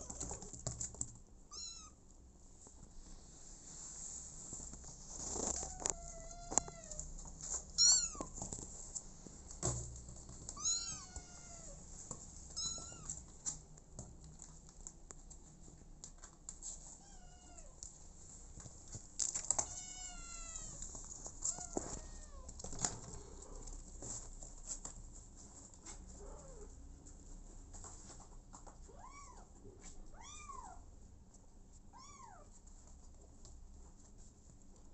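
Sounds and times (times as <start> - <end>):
kitten meowing: 1.5 - 2.0, 7.8 - 8.3, 10.6 - 11.8, 12.6 - 13.1.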